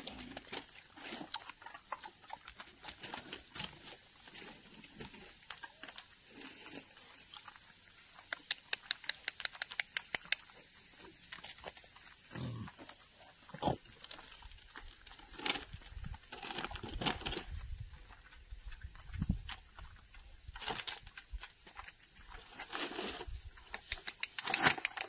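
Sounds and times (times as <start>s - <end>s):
boars grunting: 12.3s - 12.9s.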